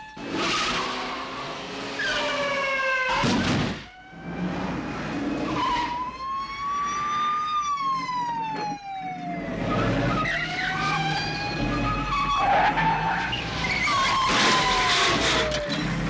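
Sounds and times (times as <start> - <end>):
police siren wailing: 0.0 - 16.0
car engines running: 9.4 - 16.0.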